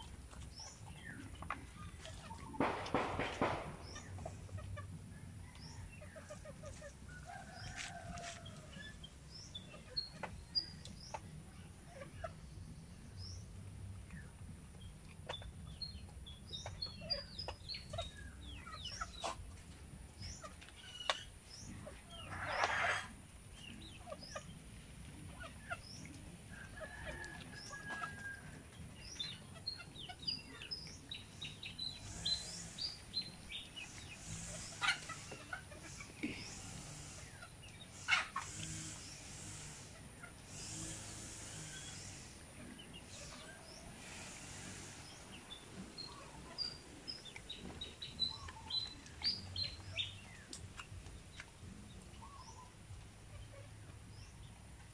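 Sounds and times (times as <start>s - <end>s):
chickens clucking: 0.0s - 54.9s
bird chirps and calls: 29.0s - 39.8s, 42.9s - 50.6s.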